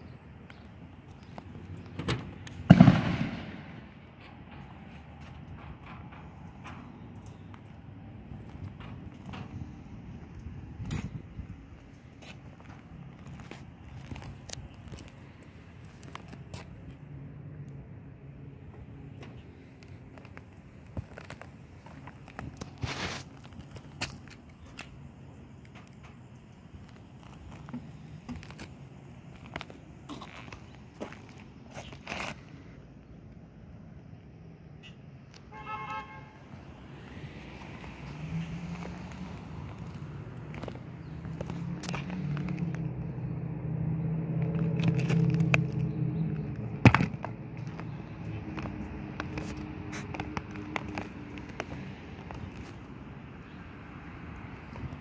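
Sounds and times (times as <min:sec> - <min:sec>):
footsteps crunching on gritty roof: 0:00.5 - 0:17.0, 0:18.8 - 0:25.0, 0:26.7 - 0:32.7, 0:36.6 - 0:42.9, 0:44.4 - 0:53.0.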